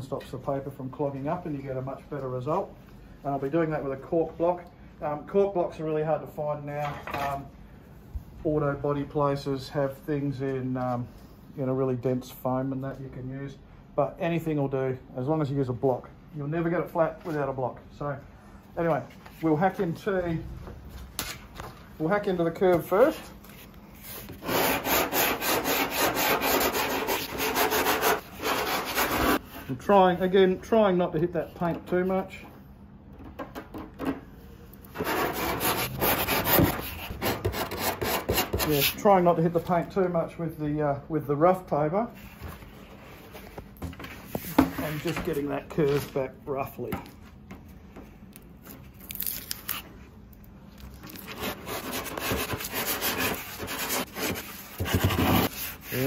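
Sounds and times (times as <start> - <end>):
sandpaper scratching strokes: 24.0 - 29.4, 35.0 - 39.0, 51.3 - 56.0.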